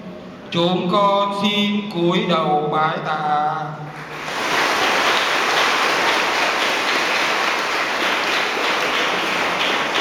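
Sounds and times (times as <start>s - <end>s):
crowd applauding: 3.9s - 10.0s.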